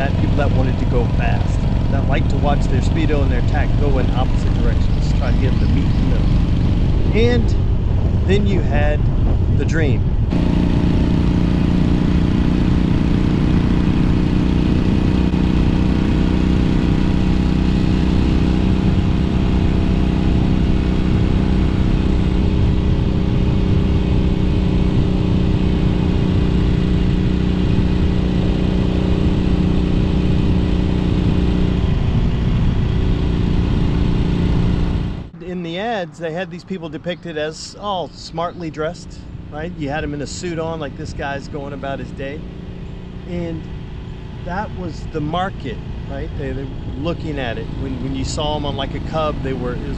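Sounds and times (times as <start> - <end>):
wind rumble on microphone: 0.0 - 35.3
motorcycle engine running: 0.0 - 36.4, 37.0 - 49.9.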